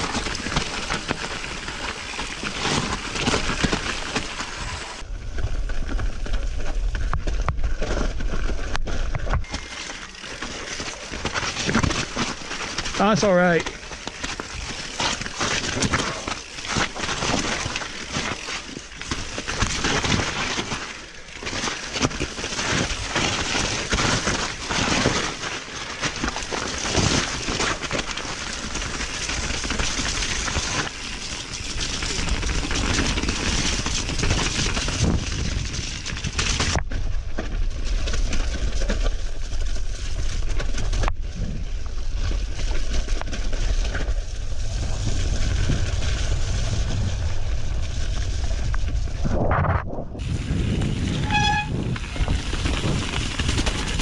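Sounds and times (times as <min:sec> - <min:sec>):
board rushing over snow: 0:00.0 - 0:20.8, 0:21.9 - 0:54.0
low rumbling noise: 0:43.8 - 0:53.4.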